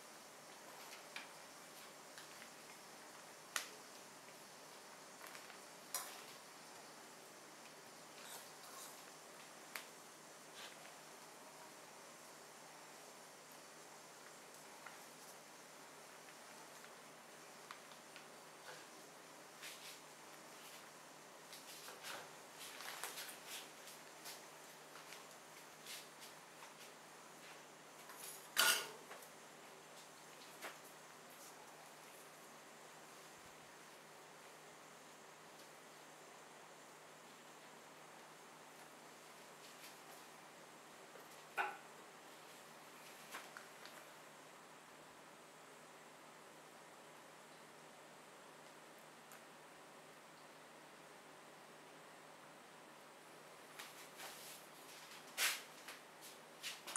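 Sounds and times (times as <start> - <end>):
faint hiss: 0.0 - 56.9
tongs clattering on steel plate: 28.6 - 29.0.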